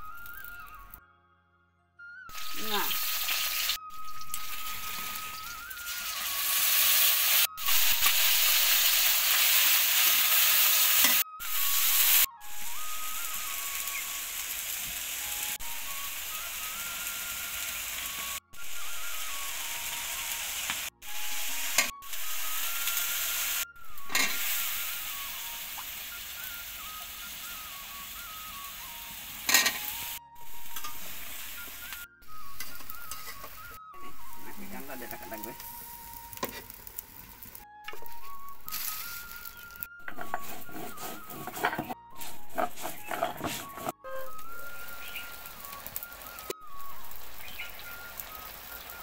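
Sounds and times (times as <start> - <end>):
onions sizzling in hot oil: 0.0 - 0.6, 2.3 - 49.0
metal spatula scraping pan: 40.1 - 44.0.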